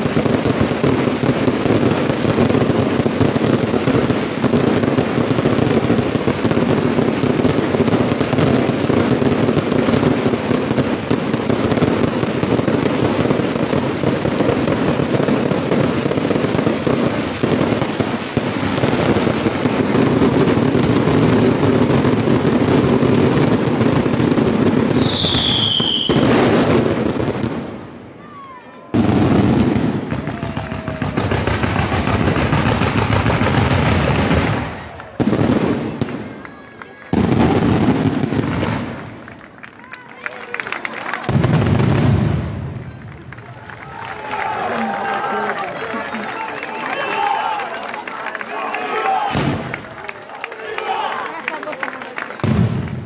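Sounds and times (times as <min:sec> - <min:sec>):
fireworks banging and crackling: 0:00.0 - 0:53.0
high falling whistle: 0:25.0 - 0:26.2.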